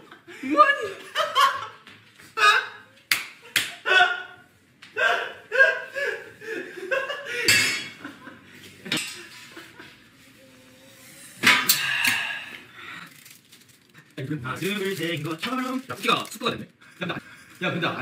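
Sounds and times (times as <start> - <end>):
young men laughing: 0.0 - 1.8, 3.6 - 10.0.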